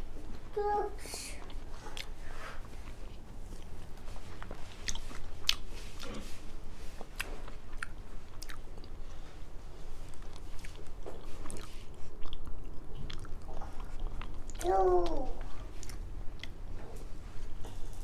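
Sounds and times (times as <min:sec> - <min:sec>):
person chewing: 0:01.4 - 0:06.4, 0:07.0 - 0:09.2, 0:10.1 - 0:16.6.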